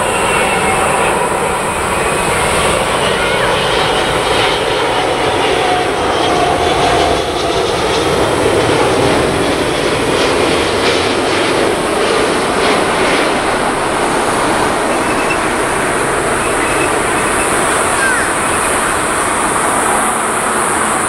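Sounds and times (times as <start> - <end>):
jet engines roaring: 0.0 - 21.0.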